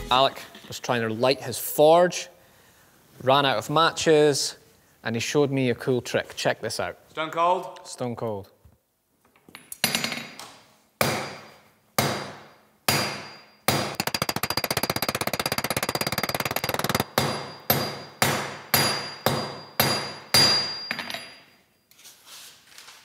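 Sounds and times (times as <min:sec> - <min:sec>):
hammer striking steel on anvil: 0:11.0 - 0:14.0, 0:17.0 - 0:21.6.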